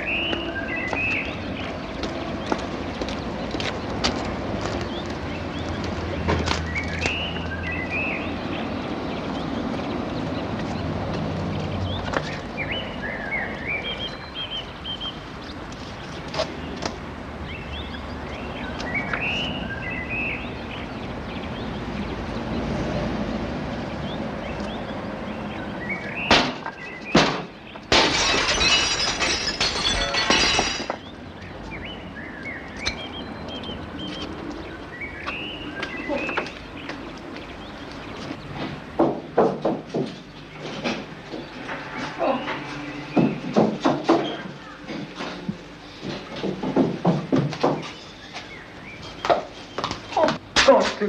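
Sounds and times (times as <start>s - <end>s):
birds chirping: 0.0s - 51.0s
window glass shattering: 27.2s - 31.1s
glass pieces falling: 27.9s - 31.0s.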